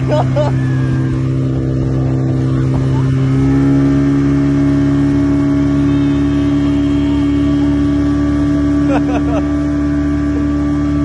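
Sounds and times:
outboard motor drone: 0.0s - 11.0s.

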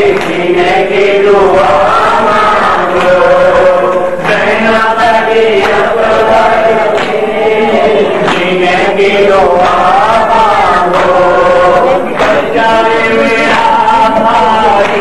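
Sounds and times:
men chanting in unison: 0.0s - 15.0s
reciter singing into a microphone: 0.0s - 15.0s.

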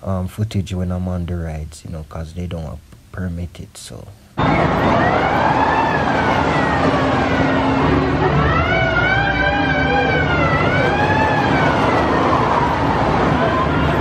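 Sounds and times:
riders screaming: 4.4s - 9.9s
rushing noise of ride: 4.4s - 14.0s.

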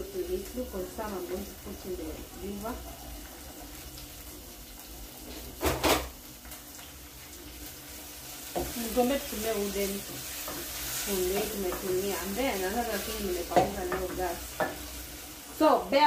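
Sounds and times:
spoon stirring frying vegetables: 6.3s - 15.8s.

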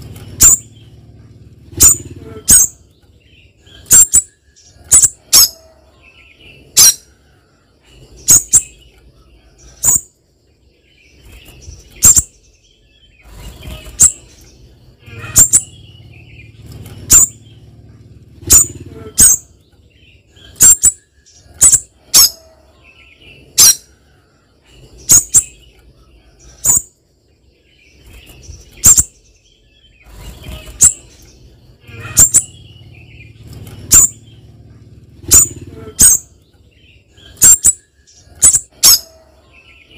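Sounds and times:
bird high-pitched call notes: 15.0s - 16.0s, 20.4s - 23.9s, 31.8s - 33.0s, 37.2s - 39.9s.

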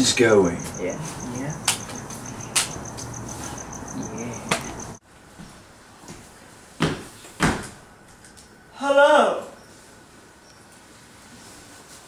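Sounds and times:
crickets chirping: 0.0s - 5.0s, 6.0s - 11.3s
sharp knocks: 4.4s - 5.0s, 6.8s - 7.8s.

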